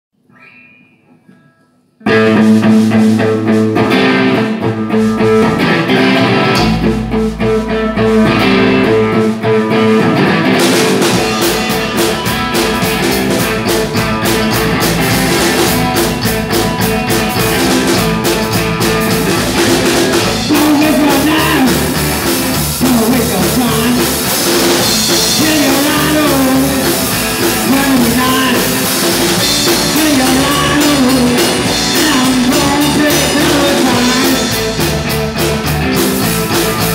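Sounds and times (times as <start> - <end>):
guitar: 0.1 - 36.9
drum kit: 2.1 - 36.9
double bass: 10.8 - 36.9
man singing: 19.9 - 34.8.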